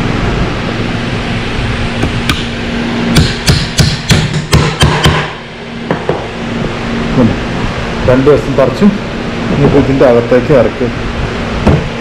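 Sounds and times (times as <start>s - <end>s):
hammer driving nails into wood: 3.2s - 5.3s.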